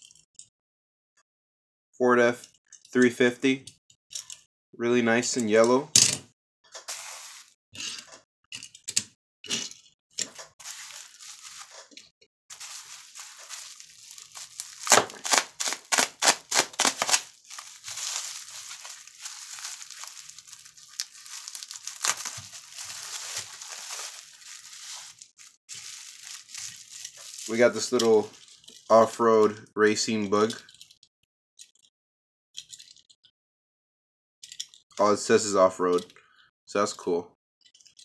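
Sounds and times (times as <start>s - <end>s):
bubble wrap crinkling: 10.6s - 28.6s.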